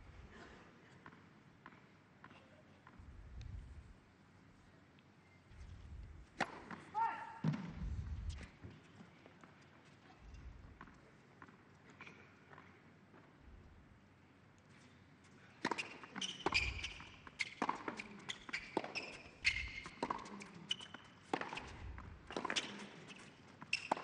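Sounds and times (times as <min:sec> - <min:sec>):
ball bouncing on hard court: 0:15.6 - 0:18.1, 0:18.8 - 0:22.9
shoes squeaking on court: 0:15.6 - 0:24.0.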